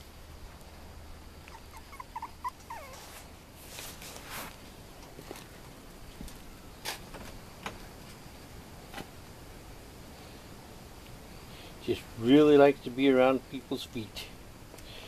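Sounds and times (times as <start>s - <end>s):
puppy whimpering: 1.5s - 3.3s.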